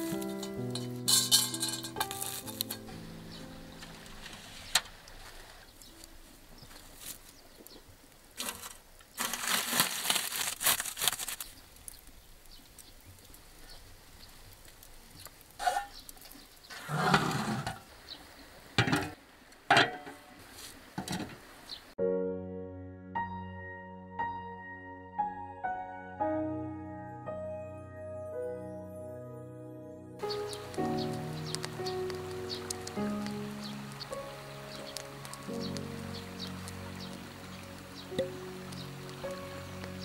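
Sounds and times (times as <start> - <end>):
scraping and rustling: 0.0 - 3.0, 3.8 - 6.0, 8.4 - 11.6, 15.6 - 17.8
music: 0.0 - 4.8, 22.0 - 40.0.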